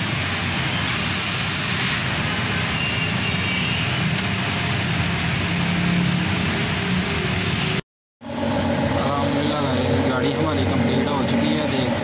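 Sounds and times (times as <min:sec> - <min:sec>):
motor vehicle noise: 0:00.0 - 0:12.0
brief hiss: 0:00.9 - 0:02.1.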